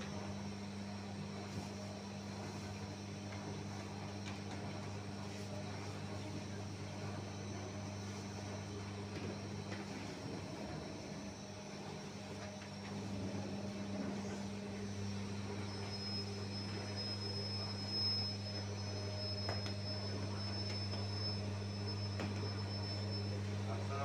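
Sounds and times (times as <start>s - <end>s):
low electric machinery hum: 0.0s - 24.0s
thin high whine: 0.0s - 24.0s.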